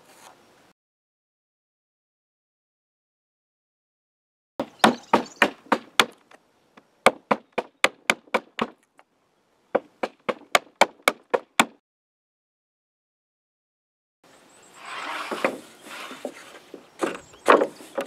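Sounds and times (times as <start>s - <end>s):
handsaw cutting wood: 14.8s - 18.0s.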